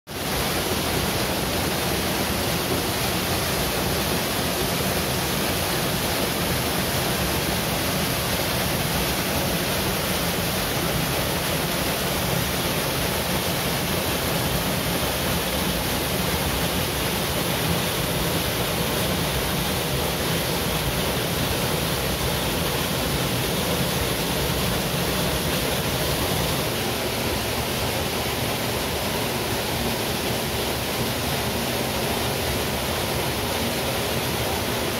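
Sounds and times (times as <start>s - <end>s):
waterfall rushing: 0.1s - 34.9s.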